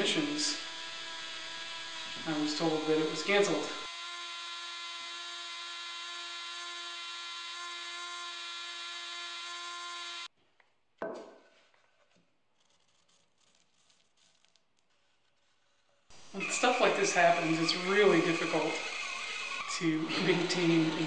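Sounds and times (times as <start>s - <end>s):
rotary carving tool whine: 0.0s - 10.3s, 15.3s - 21.0s
marker scratching on wood: 11.7s - 16.2s.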